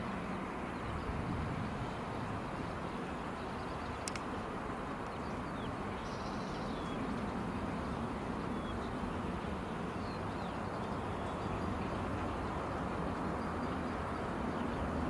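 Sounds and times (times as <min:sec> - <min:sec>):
jet engines rumbling: 0:00.0 - 0:05.0
faint bird chirps: 0:05.2 - 0:07.1.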